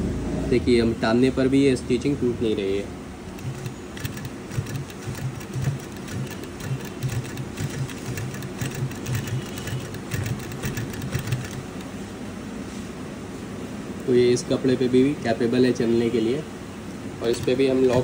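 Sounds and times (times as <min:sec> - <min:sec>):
sewing machine stitching: 0:03.3 - 0:12.0, 0:17.2 - 0:18.0.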